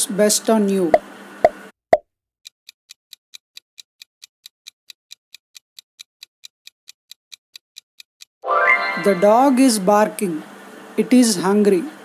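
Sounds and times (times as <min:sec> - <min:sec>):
clock ticking: 0:02.4 - 0:08.3.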